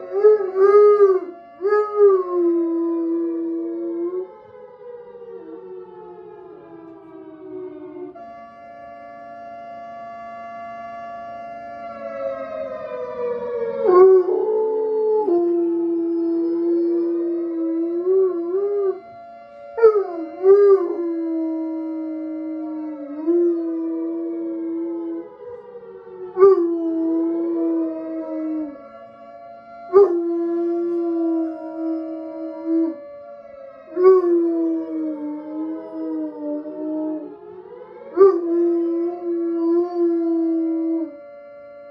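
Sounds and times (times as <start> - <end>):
siren from phone speaker: 0.0 - 41.9
dog howling: 13.2 - 19.2, 19.8 - 25.6, 26.3 - 28.8, 29.9 - 33.0, 33.9 - 41.2.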